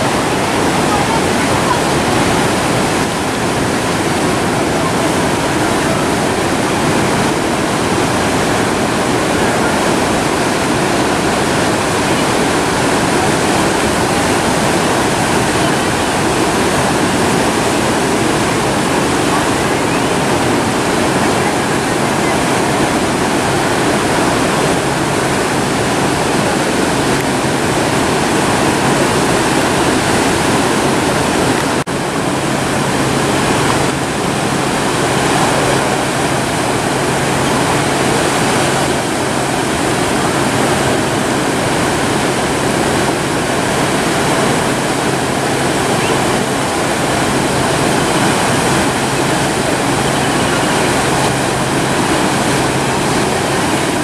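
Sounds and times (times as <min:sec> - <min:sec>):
ocean waves breaking on rocks: 0:00.0 - 0:54.0.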